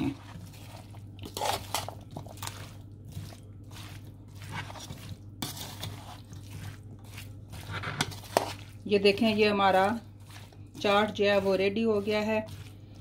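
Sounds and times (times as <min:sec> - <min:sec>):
spoon squelching thick mix: 0:00.0 - 0:13.0
spoon scraping metal bowl: 0:01.2 - 0:02.6, 0:04.4 - 0:13.0.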